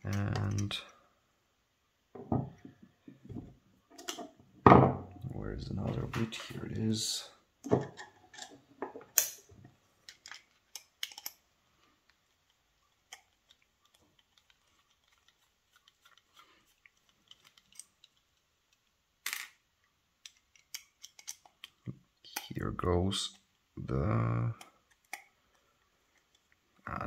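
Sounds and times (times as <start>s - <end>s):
metal lock parts clicking: 10.0s - 11.4s, 20.2s - 22.5s
screwdriver handled: 10.0s - 11.4s, 13.0s - 18.8s, 20.2s - 22.6s.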